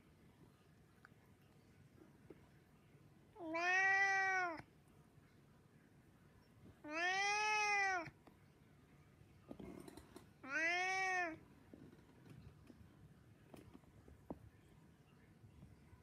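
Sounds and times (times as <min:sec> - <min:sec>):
cat meowing: 0:03.4 - 0:04.6, 0:06.8 - 0:08.2, 0:10.4 - 0:11.4.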